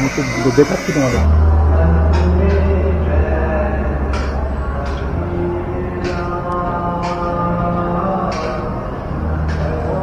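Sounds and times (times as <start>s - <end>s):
music with held notes: 0.0s - 10.0s
sharp percussive hits: 4.0s - 7.5s.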